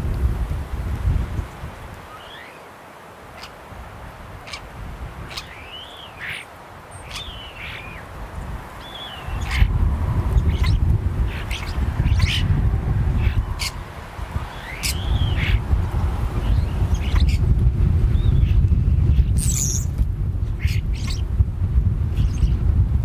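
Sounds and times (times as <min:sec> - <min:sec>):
bird whistles: 0:02.1 - 0:02.6, 0:05.3 - 0:06.4, 0:14.5 - 0:15.6, 0:19.4 - 0:19.9
low rumble: 0:09.4 - 0:23.0.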